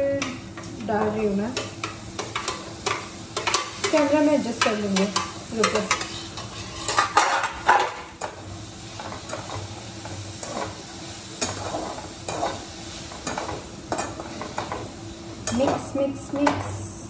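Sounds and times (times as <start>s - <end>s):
frying sizzle: 0.0s - 17.0s
metal spoon scraping a pan: 1.6s - 8.0s, 11.4s - 14.8s.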